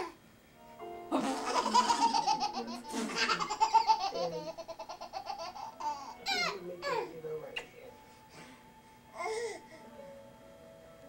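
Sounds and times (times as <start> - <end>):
baby belly-laughing: 1.1 - 7.0.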